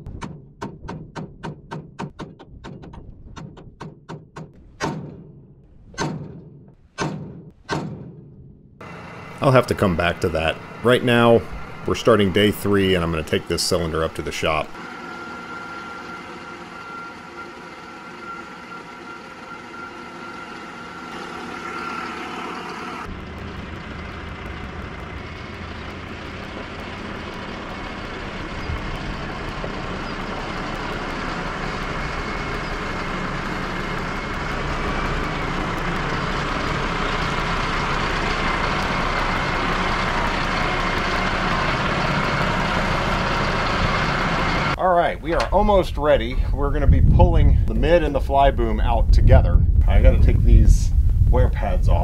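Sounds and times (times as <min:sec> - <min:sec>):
steady hum: 0:08.8 - 0:38.0
steady high whine: 0:08.8 - 0:52.0
vehicle engine running: 0:08.8 - 0:52.0.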